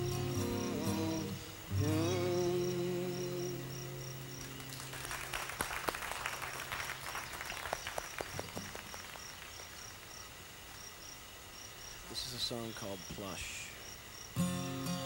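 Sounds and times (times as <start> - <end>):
cricket chirping: 0.0 - 15.0
audience applause: 4.4 - 9.9.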